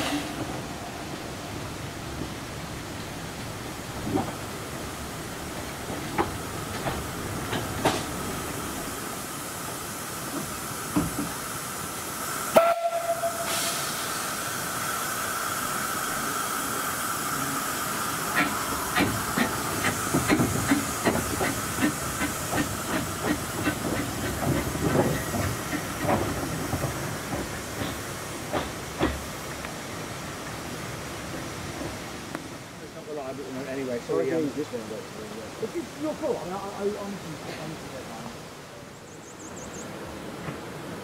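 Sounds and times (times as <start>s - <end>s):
steam hissing from cylinders: 0.0s - 38.5s
steam locomotive exhaust beats: 5.6s - 32.5s
steam locomotive whistle: 12.5s - 14.2s.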